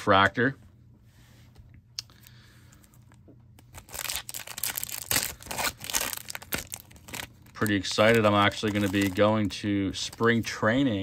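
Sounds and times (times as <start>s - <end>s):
foil card pack tearing and crinkling: 3.6s - 10.6s.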